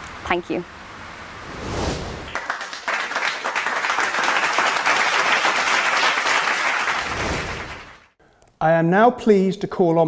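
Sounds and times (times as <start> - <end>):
crowd applauding: 2.3 - 8.2.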